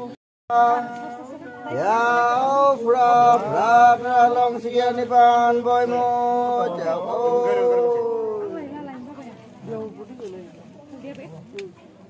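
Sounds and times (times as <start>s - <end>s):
man chanting a prayer: 0.5s - 8.5s.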